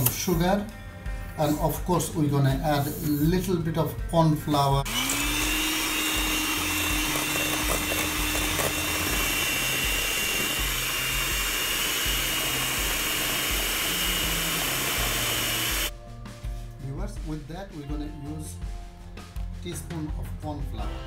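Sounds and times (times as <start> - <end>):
electric hand mixer whipping: 4.8 - 15.9.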